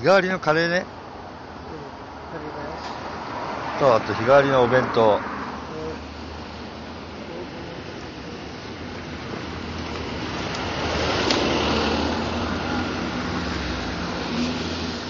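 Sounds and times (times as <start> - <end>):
low traffic hum: 0.0 - 15.0
vehicle passing close by: 2.3 - 15.0.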